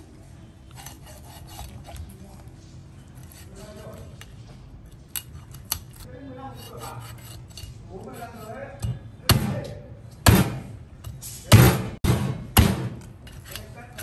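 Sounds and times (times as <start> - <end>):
cleaver scraping fish skin: 0.6 - 8.8, 13.0 - 14.0.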